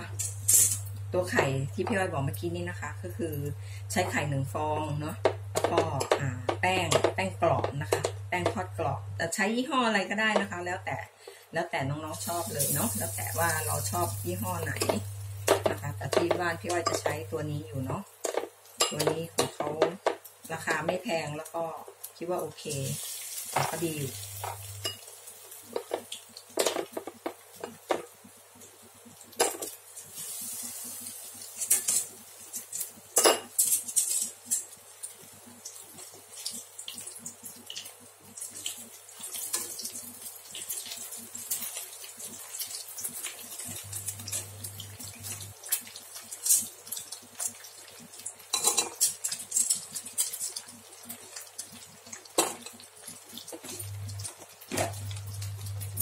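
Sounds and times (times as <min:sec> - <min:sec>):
food sizzling in oil: 0:00.0 - 0:09.4, 0:11.9 - 0:56.0
metal tongs clinking on pan: 0:31.6 - 0:34.8, 0:48.5 - 0:50.6.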